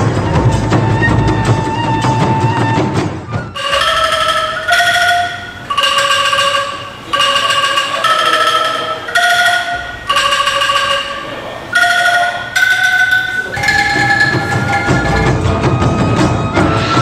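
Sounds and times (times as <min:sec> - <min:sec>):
angklung melody: 0:00.0 - 0:17.0
low-note accompaniment: 0:03.6 - 0:15.9.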